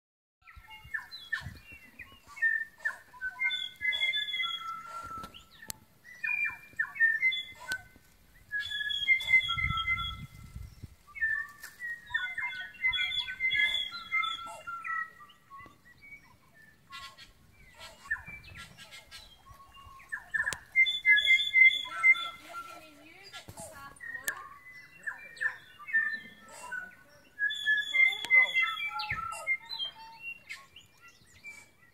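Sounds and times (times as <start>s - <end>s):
birds singing: 0.4s - 31.9s
sharp bird clicks: 20.4s - 20.7s.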